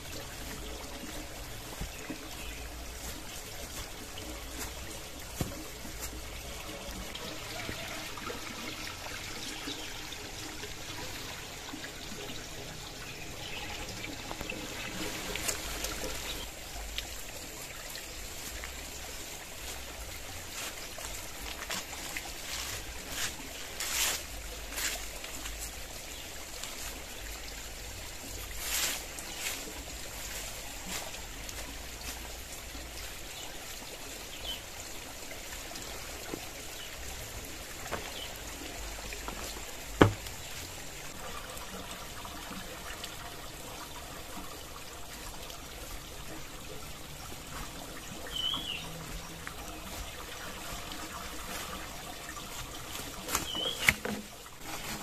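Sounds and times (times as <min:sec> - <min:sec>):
water trickling: 0:00.0 - 0:55.0
bird chirps: 0:53.4 - 0:53.9.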